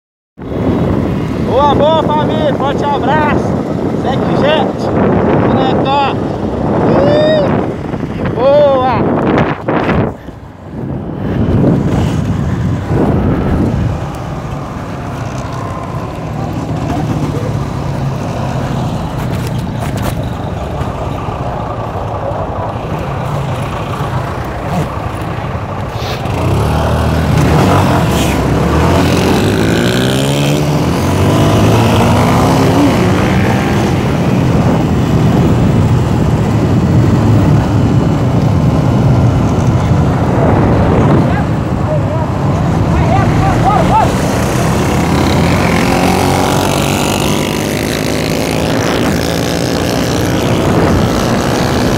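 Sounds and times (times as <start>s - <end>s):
motorcycle engine accelerating: 10.8s - 51.9s.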